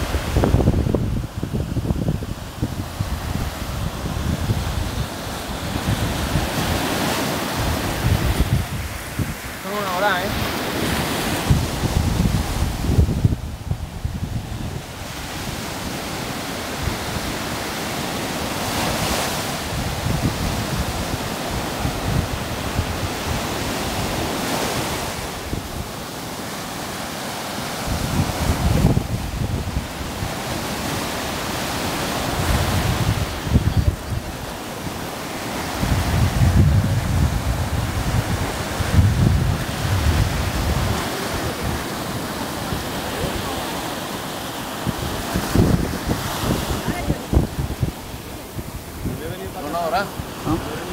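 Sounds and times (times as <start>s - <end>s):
surf breaking on beach: 0.0s - 50.9s
wind buffeting microphone: 0.0s - 50.9s.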